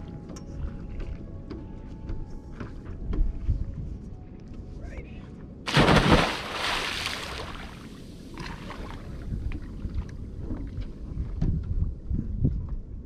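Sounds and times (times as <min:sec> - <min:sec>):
wind rumbling on microphone: 0:02.1 - 0:04.7, 0:05.8 - 0:13.0.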